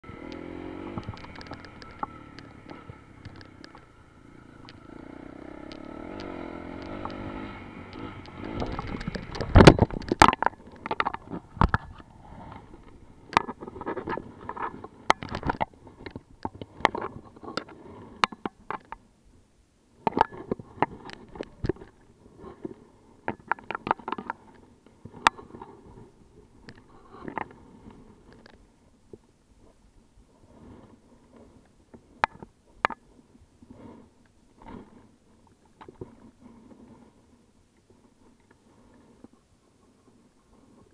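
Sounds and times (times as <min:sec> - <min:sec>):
dirt bike engine revving: 0:00.0 - 0:09.9.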